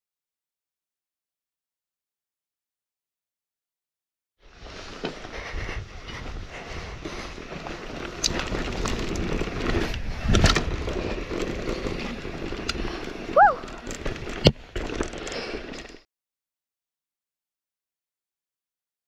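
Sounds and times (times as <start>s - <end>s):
mountain bike rumbling and rattling: 4.4s - 16.1s
sharp clacks from terrain hits: 8.0s - 12.8s.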